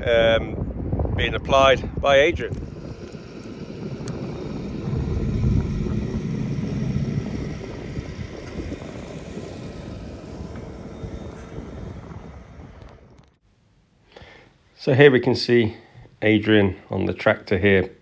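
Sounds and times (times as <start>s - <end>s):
tractor diesel engine passing: 2.4s - 13.2s.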